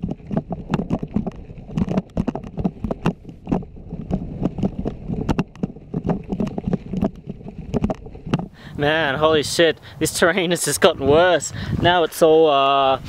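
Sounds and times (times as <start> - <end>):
bike rattling and knocking: 0.0 - 8.6
tyres crunching over stones: 0.0 - 9.3.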